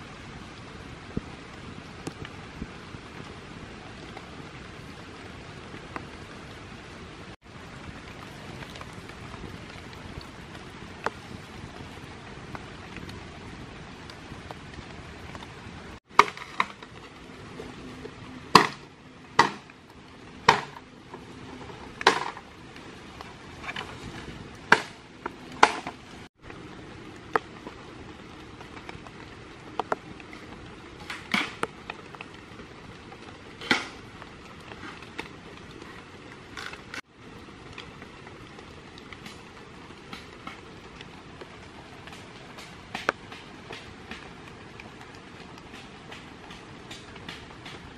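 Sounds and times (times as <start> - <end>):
rain hiss: 0.0 - 47.9
bamboo knocking: 16.1 - 17.1, 18.5 - 19.8, 20.4 - 22.5, 24.7 - 26.1, 42.0 - 44.5.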